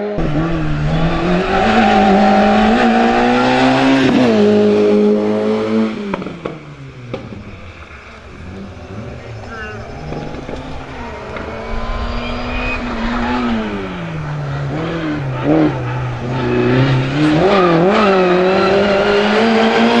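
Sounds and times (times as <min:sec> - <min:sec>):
race car engine revving: 0:00.0 - 0:20.0.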